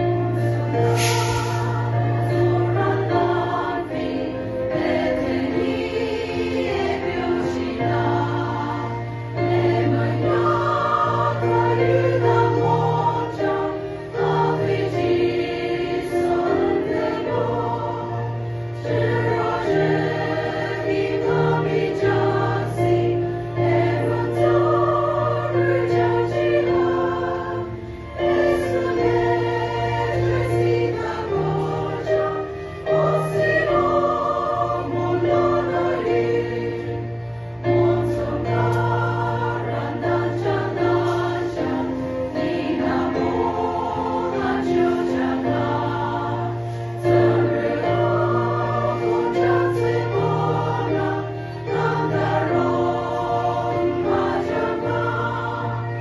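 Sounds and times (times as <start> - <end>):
women's choir singing a hymn: 0.0 - 56.0.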